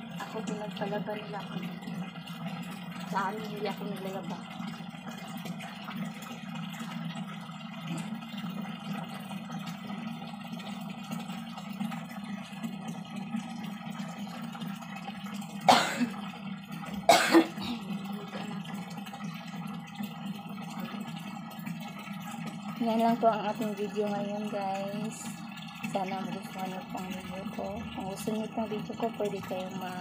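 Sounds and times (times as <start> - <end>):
water running into plastic barrel: 0.0 - 30.0
person coughing: 15.7 - 16.2, 17.1 - 18.6.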